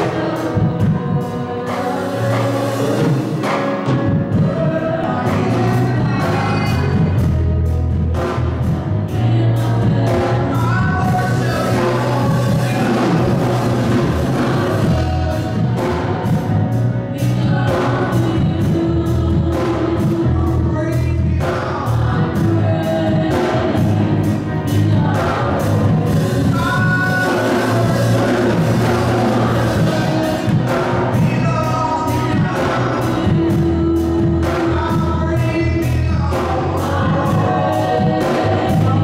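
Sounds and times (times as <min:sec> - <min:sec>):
band with drums: 0:00.0 - 0:39.0
singers in harmony: 0:00.0 - 0:39.0.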